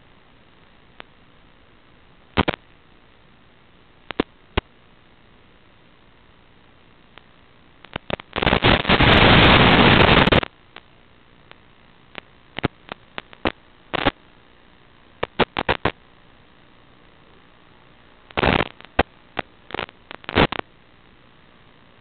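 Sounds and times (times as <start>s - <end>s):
static clicks and crackles: 0.0s - 22.0s
static hiss: 0.0s - 22.0s.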